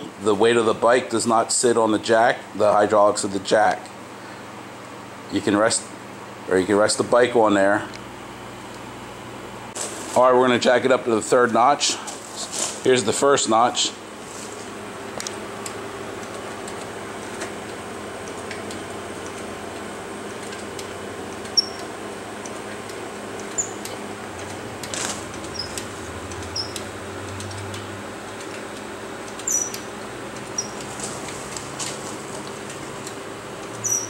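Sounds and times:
steady hum: 0:00.0 - 0:34.0
short high squeaks: 0:21.6 - 0:21.8, 0:23.5 - 0:23.9, 0:25.5 - 0:25.8, 0:26.5 - 0:26.8, 0:29.4 - 0:29.8, 0:30.5 - 0:30.8, 0:33.8 - 0:34.0.

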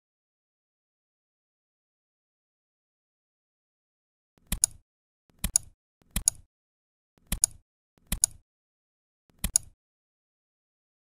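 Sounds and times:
computer mouse clicks: 0:04.4 - 0:06.5, 0:07.2 - 0:08.4, 0:09.3 - 0:09.8.

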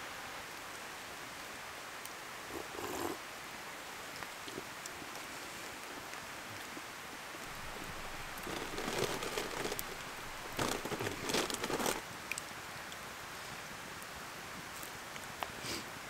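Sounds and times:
campfire crackling and popping: 0:07.4 - 0:12.5.

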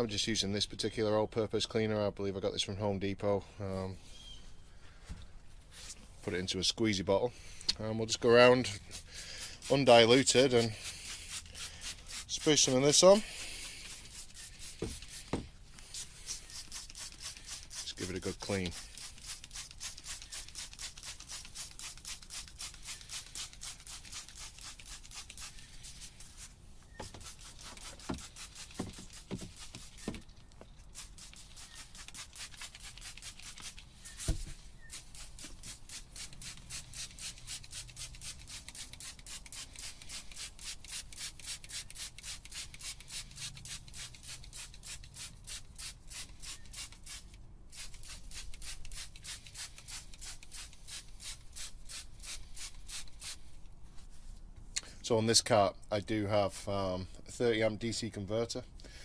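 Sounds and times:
spray bottle hissing squirts: 0:08.6 - 0:53.5.

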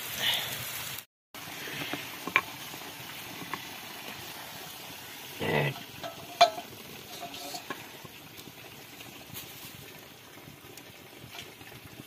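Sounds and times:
fire and frying food hissing: 0:00.0 - 0:12.0
metal cookware scraping: 0:05.4 - 0:07.8.

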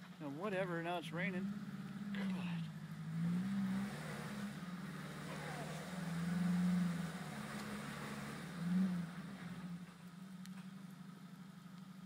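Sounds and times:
truck engine revving: 0:00.0 - 0:11.7.

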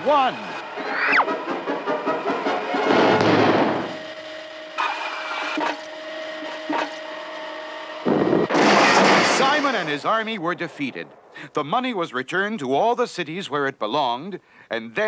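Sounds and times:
steady machine hum: 0:00.2 - 0:11.5
loud explosion blast: 0:02.9 - 0:04.0, 0:08.1 - 0:11.6
loud rushing whoosh: 0:08.0 - 0:08.6.

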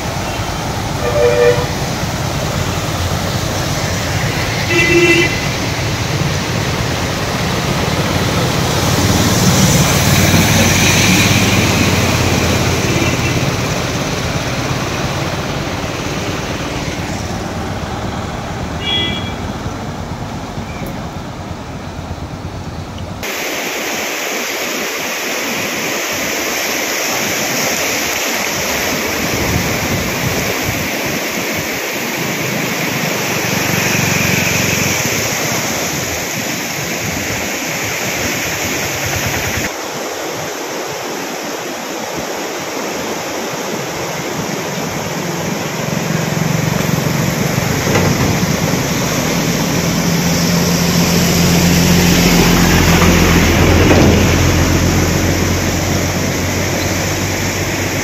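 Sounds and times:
river rushing: 0:00.0 - 0:58.0
water rushing under tyres: 0:00.0 - 0:58.0
wind on microphone: 0:28.5 - 0:31.8.

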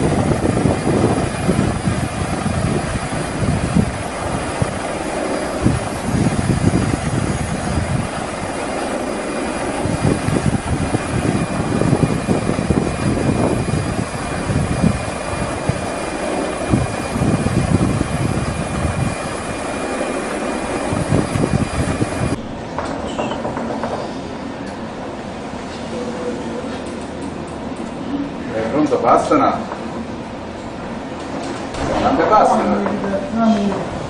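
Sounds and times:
wind buffeting microphone: 0:00.0 - 0:22.8
faint high whine: 0:00.0 - 0:26.7
helicopter engine drone: 0:00.0 - 0:34.0.

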